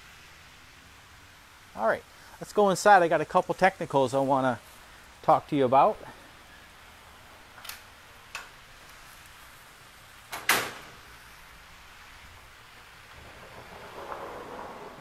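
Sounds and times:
sliding door rumble: 0:12.8 - 0:15.0.

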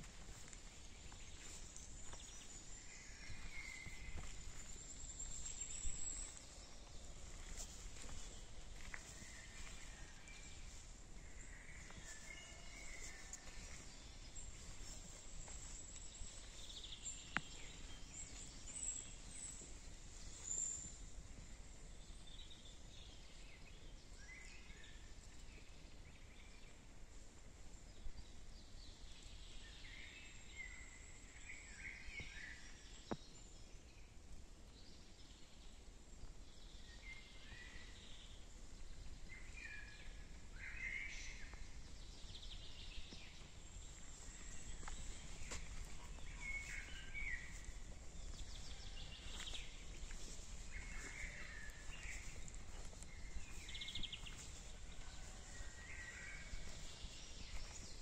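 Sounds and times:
birds chirping: 0:40.6 - 0:58.0.

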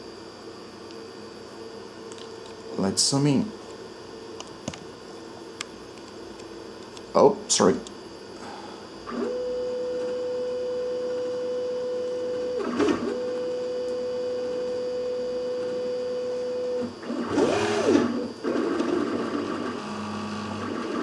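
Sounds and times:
stepper motors whining: 0:11.3 - 0:21.0.

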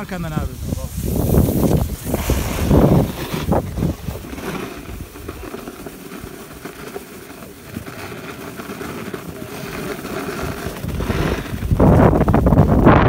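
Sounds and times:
wind buffeting microphone: 0:00.0 - 0:06.6, 0:09.4 - 0:13.0
skis scraping over snow: 0:00.0 - 0:13.0.

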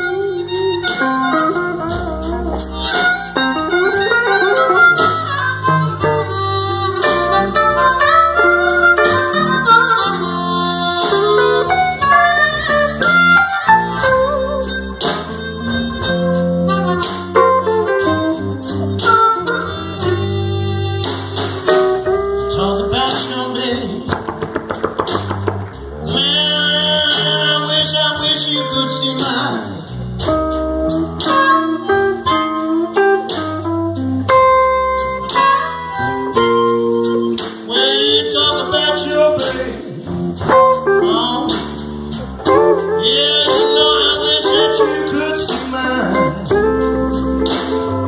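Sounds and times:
harmonica wailing: 0:00.0 - 0:22.8, 0:31.3 - 0:33.8, 0:34.4 - 0:39.7, 0:42.4 - 0:48.0
drums: 0:00.0 - 0:48.0
electric bass: 0:00.0 - 0:48.0
electric guitar: 0:00.0 - 0:48.0.

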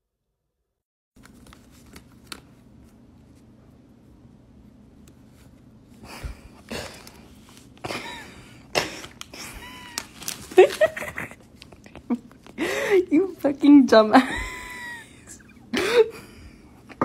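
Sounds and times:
chip bag rustling: 0:08.8 - 0:11.7.

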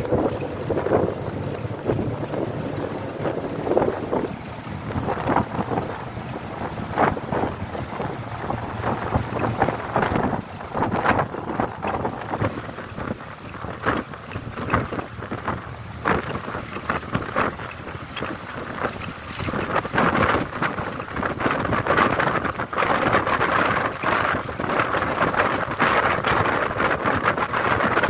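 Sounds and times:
road noise: 0:00.0 - 0:28.0
wind buffeting microphone: 0:00.0 - 0:28.0.

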